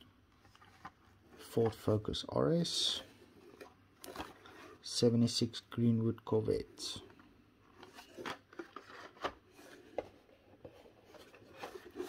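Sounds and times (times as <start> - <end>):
plastic and cardboard packaging rustling: 0.2 - 2.0, 3.2 - 4.8, 7.6 - 12.0.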